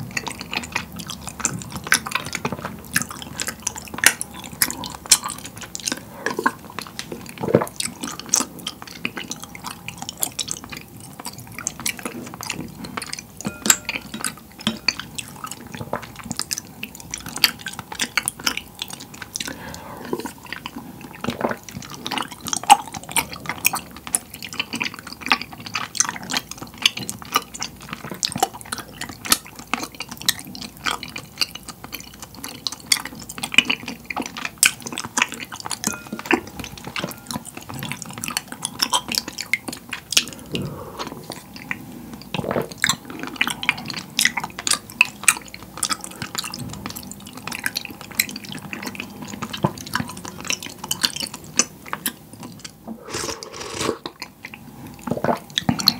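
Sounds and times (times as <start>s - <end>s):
wet chewing: 0.0s - 55.9s
spoon stirring in glass bowl: 0.2s - 18.5s, 35.5s - 40.4s.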